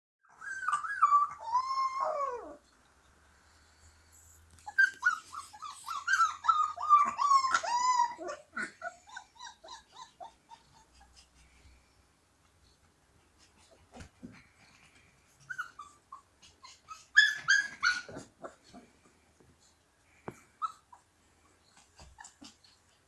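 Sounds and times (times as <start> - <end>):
puppy howling and yelping: 0.3 - 2.9, 3.7 - 11.4, 15.4 - 18.8, 20.5 - 23.0.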